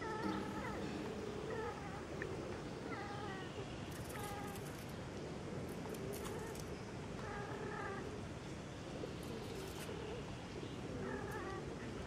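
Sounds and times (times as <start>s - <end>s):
monkey calls: 0.0s - 2.2s
steady background hiss: 0.0s - 12.0s.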